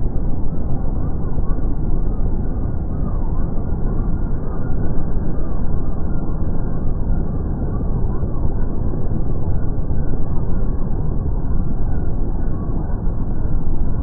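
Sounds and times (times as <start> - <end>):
helicopters rotor and engine rumble: 0.0 - 14.0.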